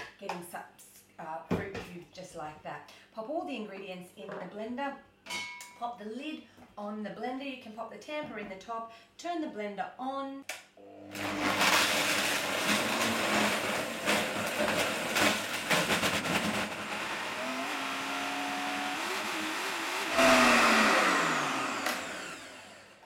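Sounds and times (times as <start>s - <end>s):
blender whirring: 10.8s - 23.0s.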